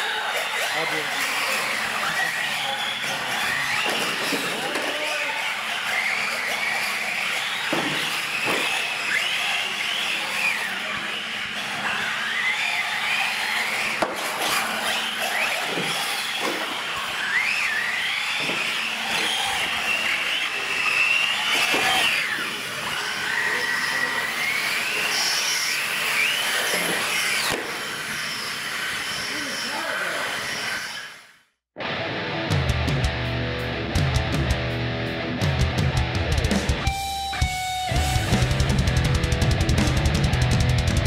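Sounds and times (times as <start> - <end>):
electric motors whining: 0.0 - 31.5.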